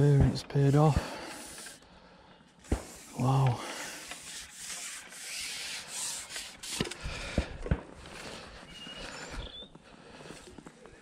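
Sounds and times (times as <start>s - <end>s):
rustling and rubbing: 0.4s - 1.8s, 2.6s - 7.0s.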